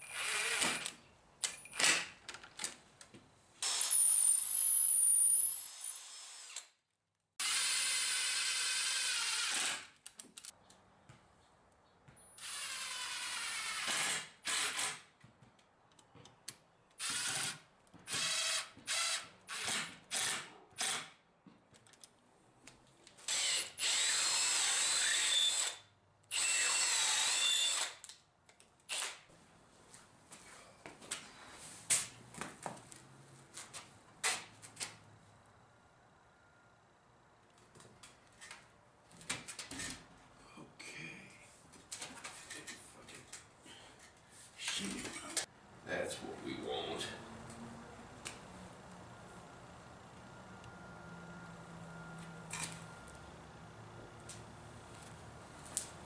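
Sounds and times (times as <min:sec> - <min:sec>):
drill driving screws into wood: 0:00.0 - 0:02.2, 0:03.6 - 0:06.8, 0:07.4 - 0:10.1, 0:12.4 - 0:15.1, 0:17.0 - 0:21.2, 0:23.2 - 0:28.1, 0:28.9 - 0:29.3.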